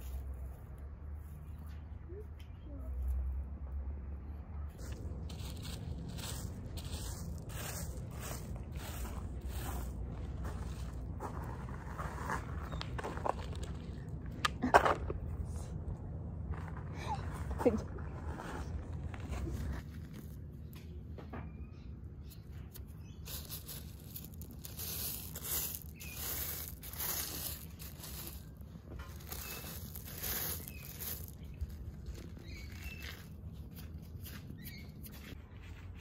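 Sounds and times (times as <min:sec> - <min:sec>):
hand scraping gravel stones: 0:04.8 - 0:15.6, 0:16.5 - 0:20.8, 0:22.2 - 0:35.6.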